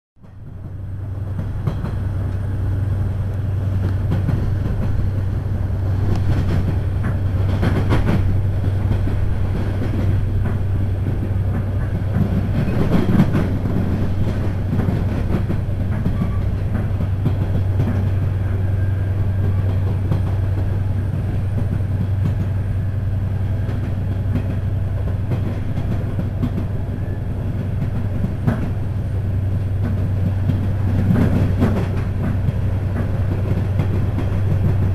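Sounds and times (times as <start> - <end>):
train clatters: 0.2 - 34.9
train interior hum: 0.2 - 34.9
wheel and track noise: 0.2 - 34.9.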